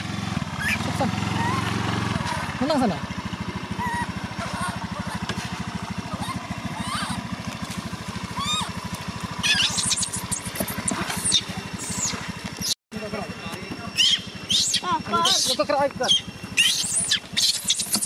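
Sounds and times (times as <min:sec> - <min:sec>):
motorbike engine idling: 0:00.0 - 0:18.0
baby monkey squealing: 0:00.6 - 0:02.4, 0:03.8 - 0:05.2, 0:06.1 - 0:07.2, 0:08.4 - 0:08.7, 0:09.4 - 0:12.2, 0:13.9 - 0:18.0.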